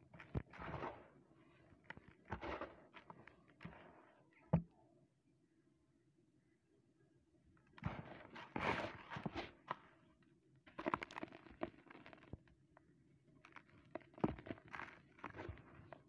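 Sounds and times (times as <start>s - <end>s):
concrete plate crunching and crackling: 0.0s - 4.6s, 10.6s - 16.0s.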